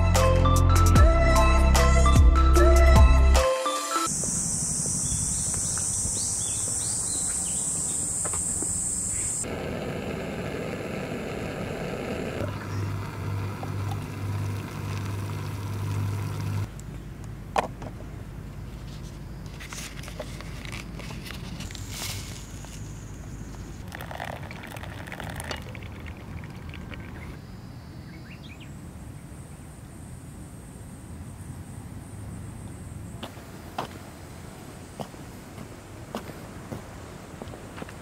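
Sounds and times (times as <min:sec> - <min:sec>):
high-pitched drone: 0:01.3 - 0:09.6
low hum: 0:04.1 - 0:17.4.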